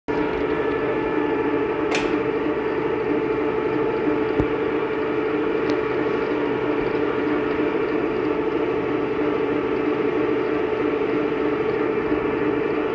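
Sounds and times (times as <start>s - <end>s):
sharp click: 1.9s - 2.2s.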